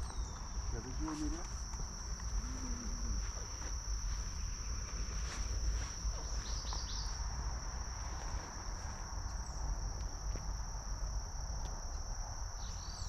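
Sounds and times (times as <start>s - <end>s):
bird chirping: 0.0s - 0.9s, 6.2s - 7.2s, 12.6s - 13.0s
insects shrilling: 0.0s - 11.5s.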